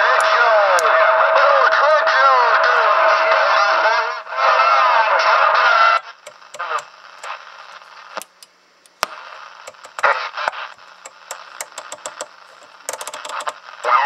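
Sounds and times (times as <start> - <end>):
broken radio chatter: 0.0 - 14.0
radio static bursts: 1.5 - 14.0
rotary selector clicking: 8.2 - 9.0, 9.7 - 10.1, 10.7 - 13.6.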